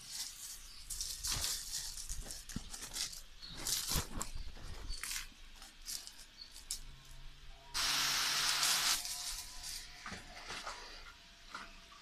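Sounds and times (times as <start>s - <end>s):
loud hiss: 7.8s - 9.4s.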